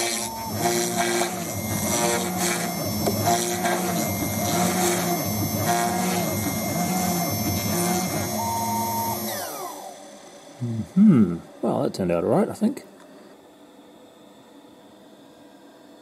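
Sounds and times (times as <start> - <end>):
stepper motors singing: 0.0 - 11.4
spindle whine: 0.0 - 12.5.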